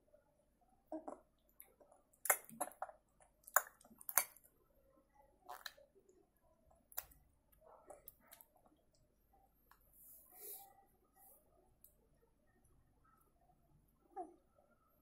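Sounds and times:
baby mouth smacks and clicks: 0:01.8 - 0:04.4.

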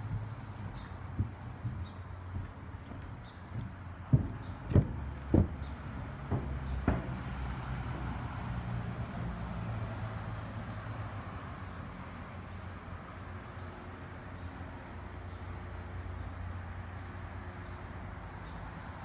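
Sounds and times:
footstep on wooden footbridge: 0:00.0 - 0:09.4
distant road traffic hum: 0:00.0 - 0:19.0.

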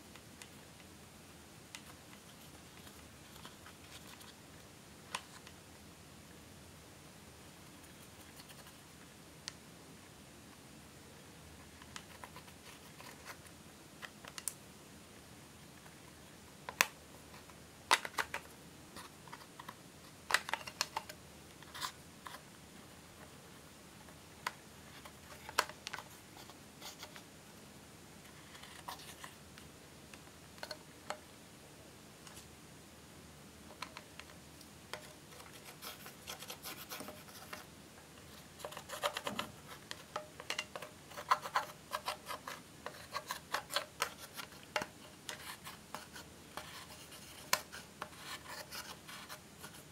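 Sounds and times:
plastic tool scraping eyeshadow: 0:34.9 - 0:37.7, 0:38.3 - 0:49.9.

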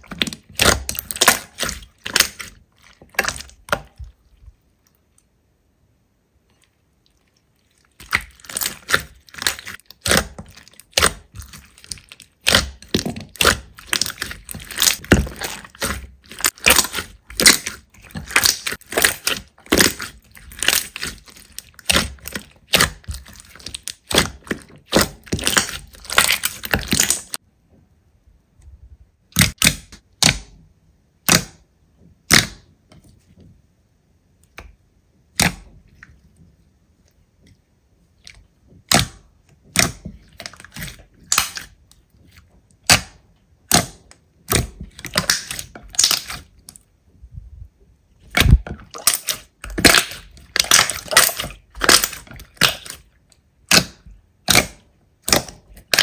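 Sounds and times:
slime popping and crackling: 0:00.0 - 0:04.2, 0:07.6 - 0:27.4, 0:29.3 - 0:30.6, 0:32.3 - 0:32.6, 0:38.8 - 0:41.9, 0:42.8 - 0:46.8, 0:48.2 - 0:56.0.

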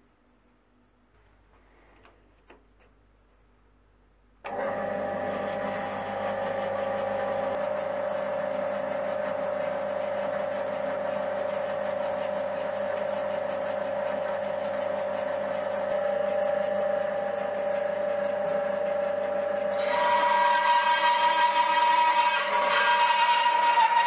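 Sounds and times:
bandsaw motor hum: 0:04.4 - 0:24.0
saw blade cutting wood: 0:19.7 - 0:24.0.

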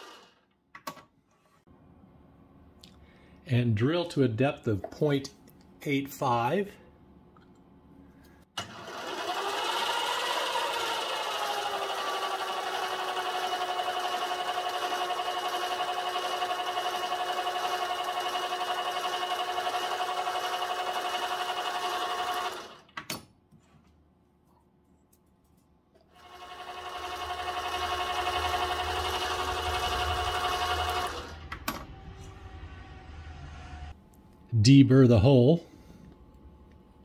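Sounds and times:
lathe motor whining: 0:00.0 - 0:00.4, 0:08.6 - 0:22.9, 0:26.1 - 0:34.0.

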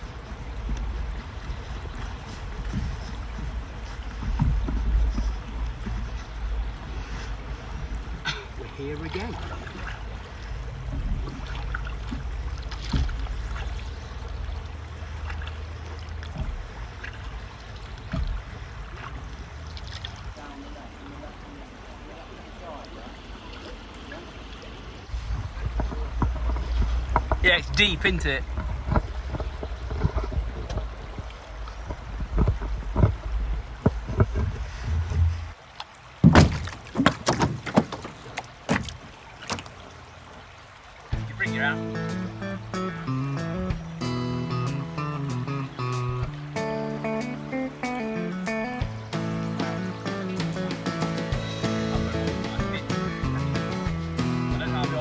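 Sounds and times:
paddle dipping and pulling through water: 0:00.0 - 0:55.0
water dripping off paddle: 0:00.0 - 0:55.0
knocks on inflatable kayak: 0:36.2 - 0:38.1.

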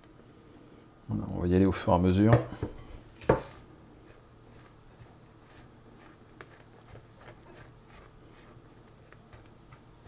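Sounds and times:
spatula scraping a glass bowl: 0:04.6 - 0:08.6.

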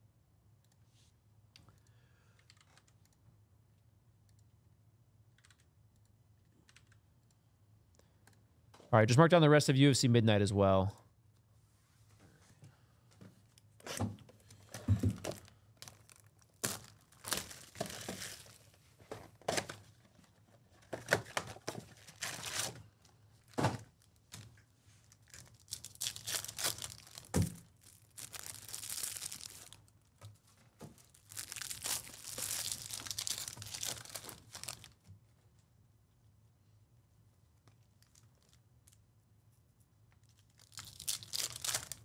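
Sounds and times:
card pack wrappers tearing: 0:15.3 - 0:18.7, 0:21.0 - 0:22.8, 0:25.1 - 0:29.9, 0:31.0 - 0:35.0, 0:40.2 - 0:42.0.

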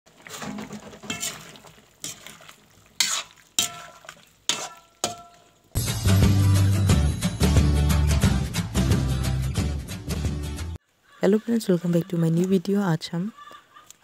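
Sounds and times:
metal spatula clinking on pan: 0:01.1 - 0:02.3, 0:03.0 - 0:05.6
music: 0:05.8 - 0:10.8.

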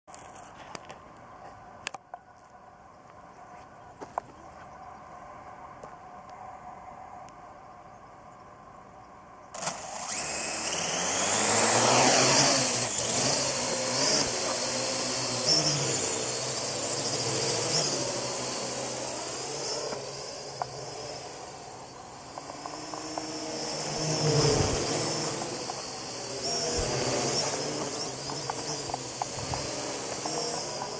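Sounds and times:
drone propellers whining: 0:09.5 - 0:30.9.

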